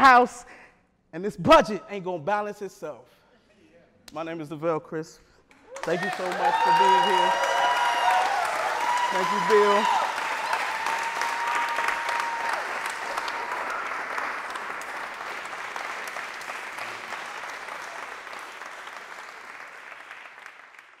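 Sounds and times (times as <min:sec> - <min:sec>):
audience applauding: 0:05.7 - 0:21.0.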